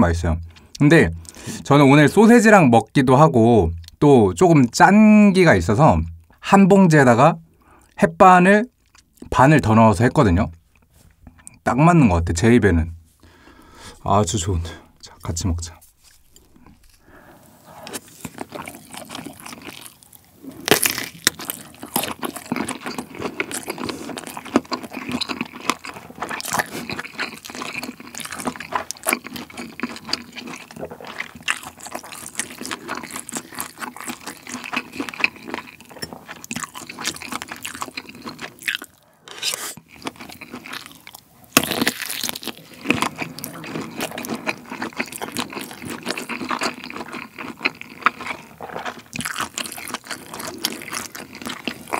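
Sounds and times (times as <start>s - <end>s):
close chewing mouth sounds: 17.8s - 39.1s, 39.8s - 51.9s.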